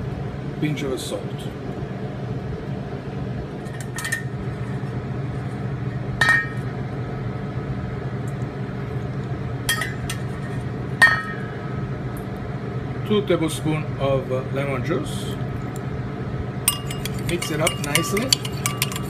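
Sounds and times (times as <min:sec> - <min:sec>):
steady low hum: 0:00.0 - 0:19.0
metal spoon clinking against bowl: 0:16.7 - 0:19.0.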